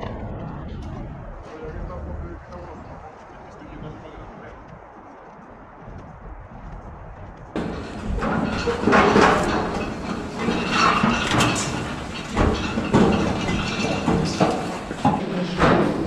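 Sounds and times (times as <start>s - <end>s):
footsteps on metal stairs: 6.7s - 16.0s.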